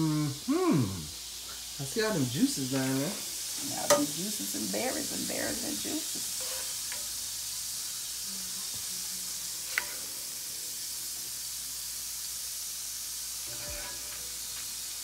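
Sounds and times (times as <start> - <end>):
fat sizzling in a skillet: 0.0 - 15.0
spoon scraping a skillet: 2.6 - 7.2, 9.6 - 10.5, 13.2 - 14.8.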